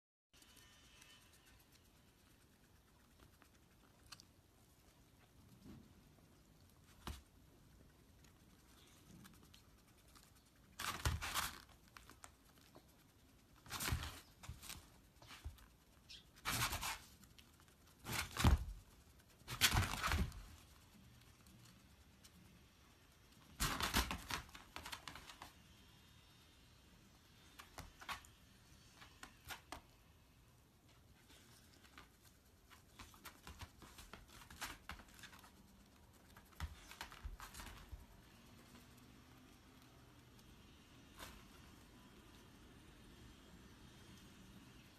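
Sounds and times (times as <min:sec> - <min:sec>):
dog claws scratching on mat: 0:08.5 - 0:20.9.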